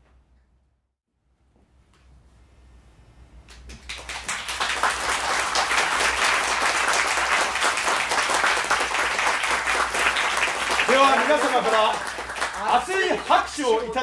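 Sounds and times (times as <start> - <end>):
audience applauding: 3.5 - 14.0.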